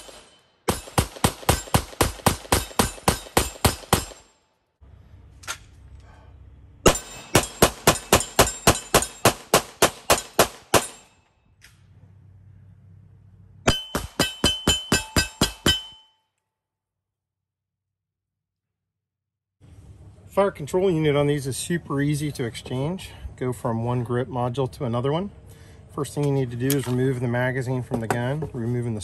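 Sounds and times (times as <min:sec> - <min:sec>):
pistol shots: 0:00.0 - 0:04.3, 0:06.8 - 0:11.2
steel targets clanging: 0:06.9 - 0:09.4, 0:13.7 - 0:16.2.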